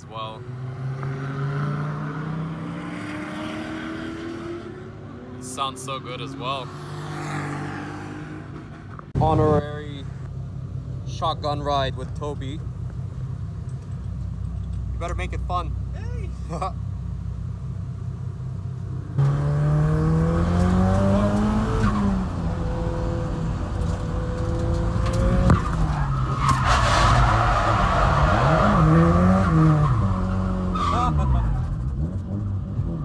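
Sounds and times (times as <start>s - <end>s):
car engine revving: 0.4s - 10.0s, 18.9s - 33.0s.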